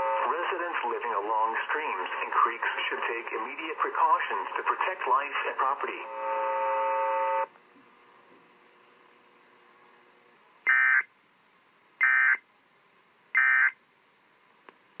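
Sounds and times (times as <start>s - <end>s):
steady buzzy tone: 0.0s - 0.5s, 5.9s - 7.5s, 10.1s - 11.1s
short warbling data bursts: 10.7s - 11.1s, 12.0s - 12.4s, 13.4s - 13.8s.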